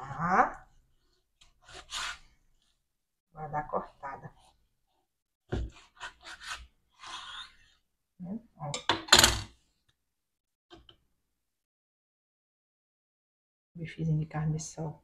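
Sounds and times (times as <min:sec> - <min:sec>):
knife sawing through meat: 0:01.6 - 0:02.3, 0:05.7 - 0:07.7.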